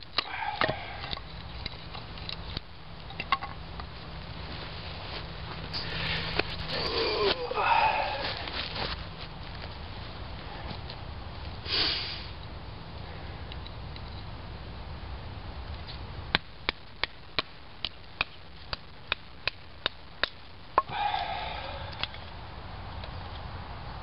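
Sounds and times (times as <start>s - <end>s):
breathy noise: 0.2s - 1.2s, 5.7s - 9.0s, 20.8s - 22.4s.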